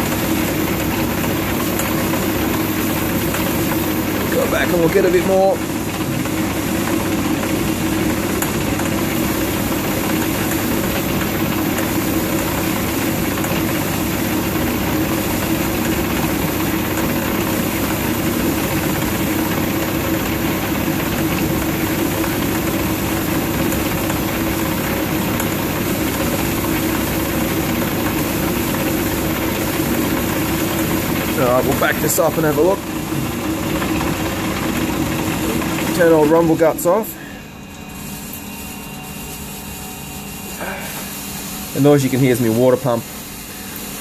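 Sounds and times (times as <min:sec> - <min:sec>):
metal lathe rumbling drone: 0:17.4 - 0:43.1.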